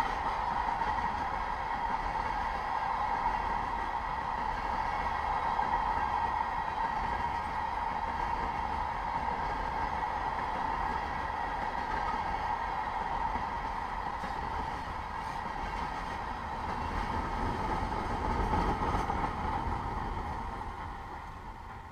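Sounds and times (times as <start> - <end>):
train wheels rumbling on rails: 0.0 - 21.9.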